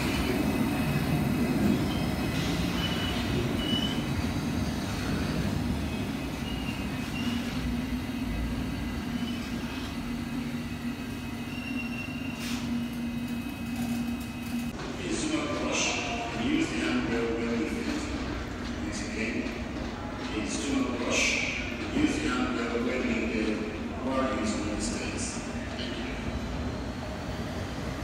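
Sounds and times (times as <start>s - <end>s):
train wheels squealing: 0.0s - 14.4s
subway train rumbling slowly: 0.0s - 28.0s.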